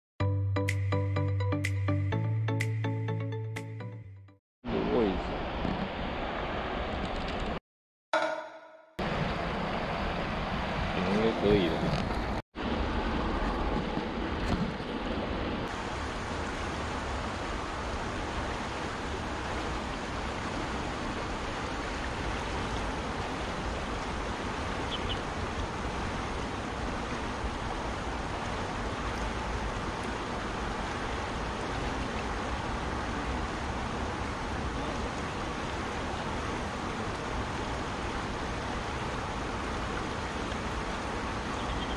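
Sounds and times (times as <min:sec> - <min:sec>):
river water rushing: 0:15.7 - 0:41.9.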